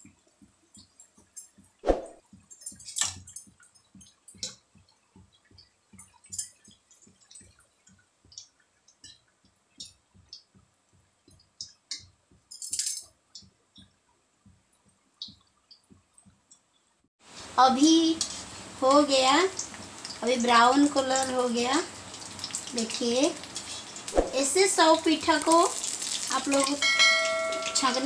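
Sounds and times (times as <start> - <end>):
oil crackling and popping: 0.0 - 12.5, 13.3 - 28.0
skimmer clinking against pan: 26.5 - 28.0.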